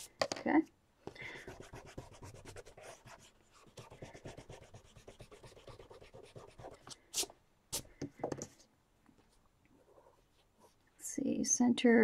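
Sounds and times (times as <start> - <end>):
eraser rubbing on paper: 1.4 - 7.9.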